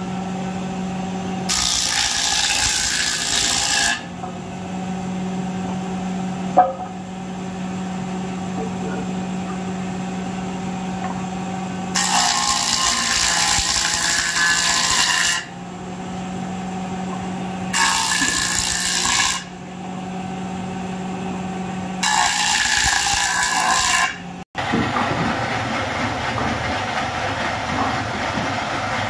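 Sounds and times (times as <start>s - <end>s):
planer cutting wood: 0.8s - 7.0s, 7.6s - 15.6s, 16.2s - 19.5s, 20.3s - 29.0s
planer motor humming: 4.1s - 12.0s.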